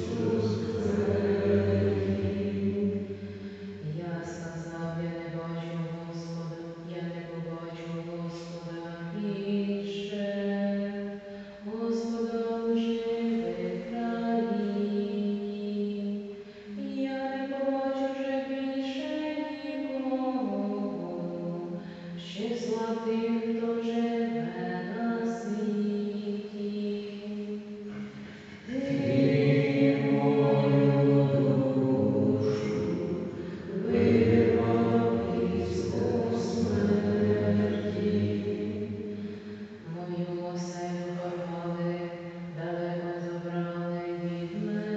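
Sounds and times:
voices singing a slow chant: 0.0s - 3.9s, 26.4s - 39.6s.

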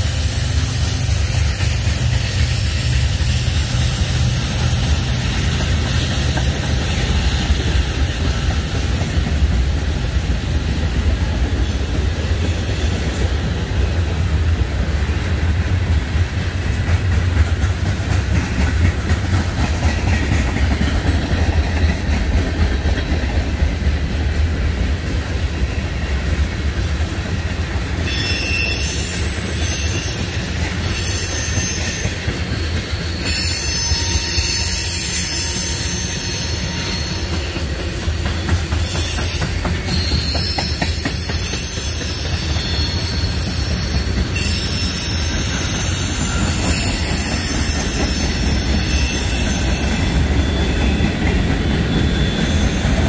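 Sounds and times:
freight train wheels rumbling: 0.0s - 53.0s
high-pitched wheel squeal: 28.0s - 37.6s, 38.6s - 53.0s.

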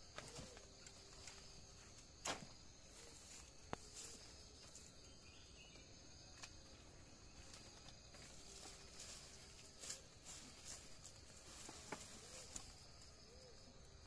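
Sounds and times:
insects chirring: 0.0s - 14.0s
leaves rustling: 7.4s - 13.6s.

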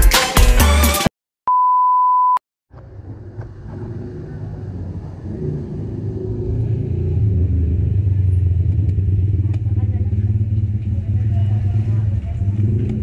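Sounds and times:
background music: 0.0s - 1.1s
steady electronic beep: 1.5s - 2.4s
low rumbling background noise: 2.8s - 13.0s.

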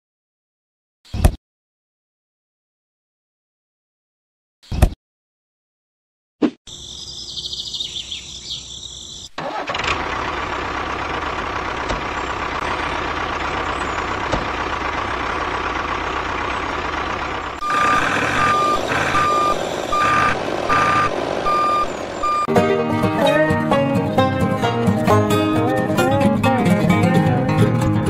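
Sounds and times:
birds chirping: 6.7s - 9.4s, 11.0s - 22.5s
vehicle engine running: 9.4s - 22.5s
reversing alarm beeping: 17.6s - 22.5s.

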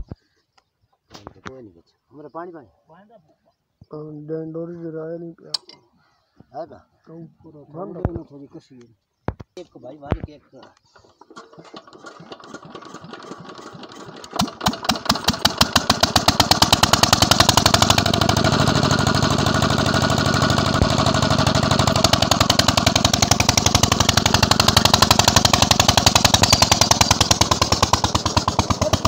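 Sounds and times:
diesel engine starting and running: 11.0s - 29.0s.

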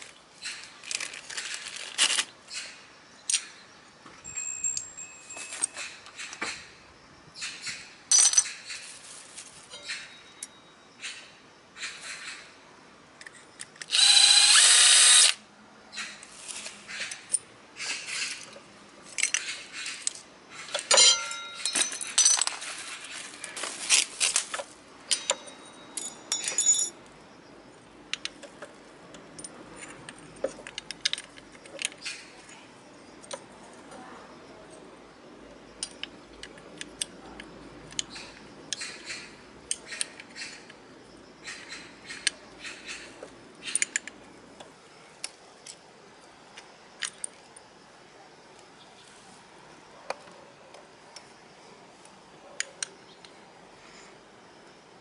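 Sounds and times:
metallic clicks of tools: 25.1s - 27.0s, 28.1s - 32.2s, 43.6s - 44.2s.

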